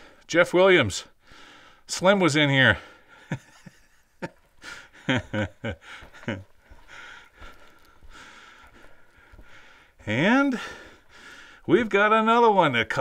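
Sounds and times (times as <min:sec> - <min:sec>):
man breathing: 0:00.0 - 0:00.3, 0:01.1 - 0:01.9, 0:02.8 - 0:03.5, 0:04.6 - 0:11.7
footsteps on rocky floor: 0:04.3 - 0:12.2.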